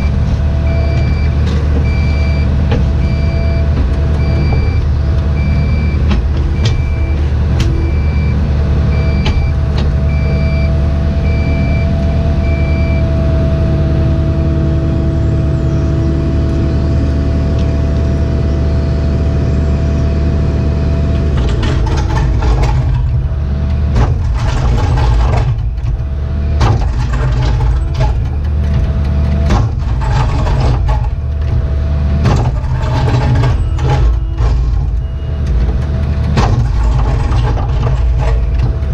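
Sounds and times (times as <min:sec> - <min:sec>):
backup alarm beeping: 0:00.0 - 0:13.3
diesel excavator engine running: 0:00.0 - 0:38.9
bucket scraping and clanking on stone: 0:21.3 - 0:38.9.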